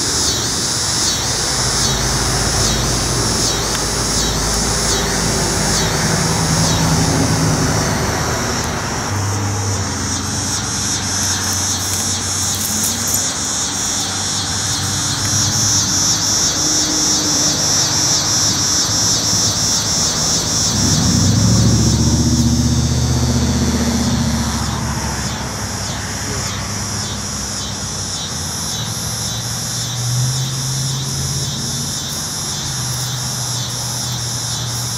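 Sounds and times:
low engine hum: 0.0s - 27.5s
cicadas buzzing: 0.0s - 34.9s.

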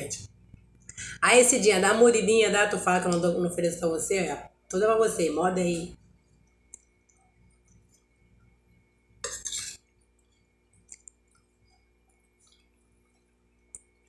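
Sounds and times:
faint eating sounds: 6.0s - 14.0s
metal spoon scraping glass bowl: 9.2s - 9.8s.

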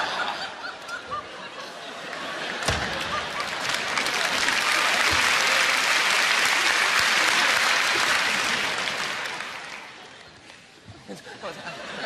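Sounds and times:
audience applauding: 2.0s - 10.7s.

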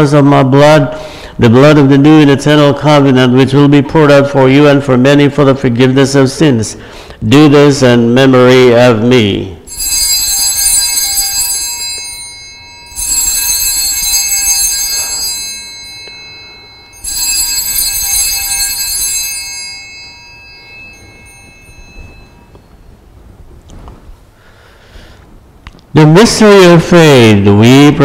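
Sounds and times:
bell ringing: 9.6s - 23.2s.

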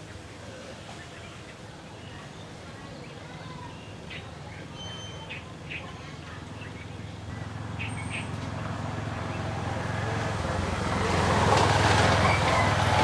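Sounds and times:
bird chirps: 1.0s - 8.4s
vehicle passing by: 6.4s - 13.0s.

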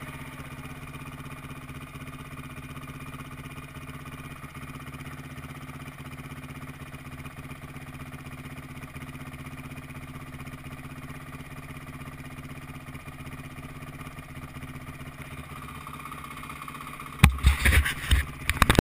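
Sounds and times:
dirt bike engine idling: 0.0s - 18.8s
hand rubbing and knocking on camera: 17.2s - 18.8s.

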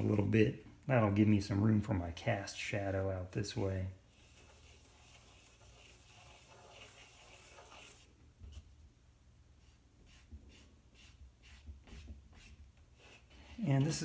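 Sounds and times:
pencil scratching on paper: 4.1s - 8.1s, 9.6s - 13.6s.

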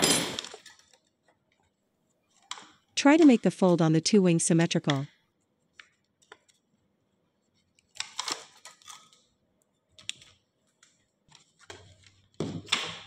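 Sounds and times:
aluminum sheet crinkling: 5.6s - 12.4s.

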